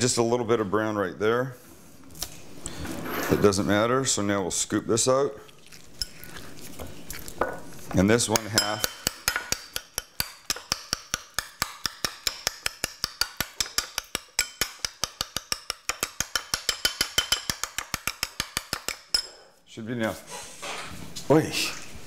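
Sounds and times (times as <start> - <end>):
spoon mashing in a ceramic bowl: 5.7 - 19.4.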